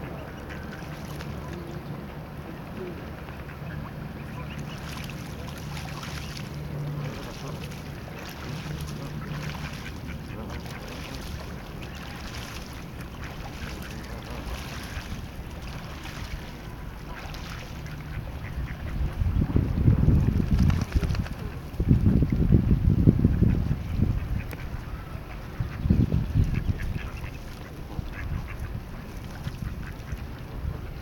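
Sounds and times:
goose splashing water: 0.0 - 22.4, 23.5 - 30.7
ducks quacking: 2.8 - 19.2, 23.3 - 31.0
wind buffeting microphone: 8.0 - 31.0.

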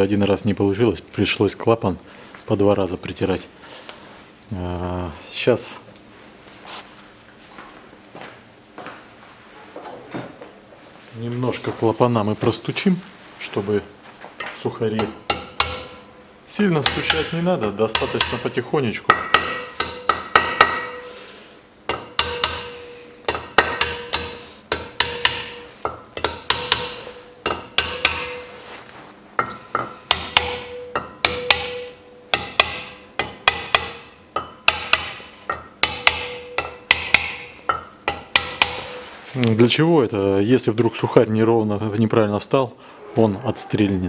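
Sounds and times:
small hammer tapping metal: 21.9 - 28.5, 29.4 - 39.0.

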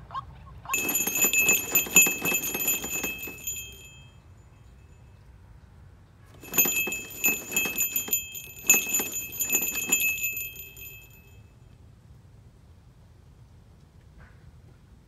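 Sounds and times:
small jingle bell jangling: 0.8 - 4.1, 6.4 - 11.3.

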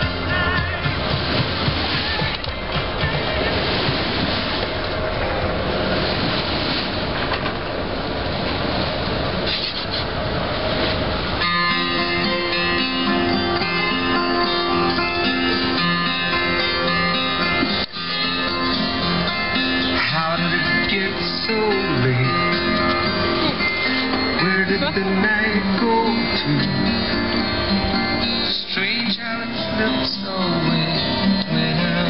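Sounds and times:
acoustic guitar music: 0.0 - 4.7, 11.4 - 32.0
rushing wind and water: 0.0 - 32.0.

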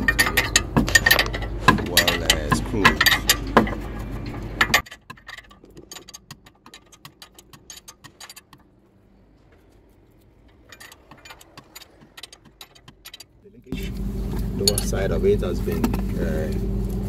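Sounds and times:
wrench clicking: 0.0 - 8.7, 10.4 - 13.3.

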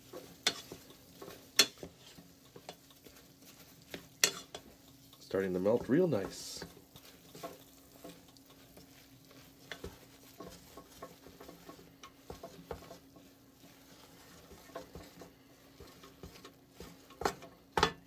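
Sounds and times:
spoon scraping saucepan: 0.0 - 18.0.

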